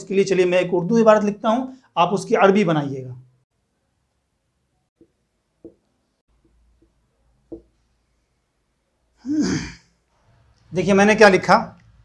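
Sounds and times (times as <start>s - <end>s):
faint soft taps: 5.0s - 7.8s.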